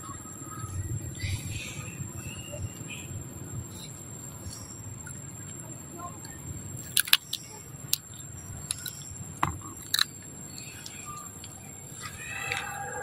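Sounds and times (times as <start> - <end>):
monkey cracking and chewing shells: 6.8 - 12.8.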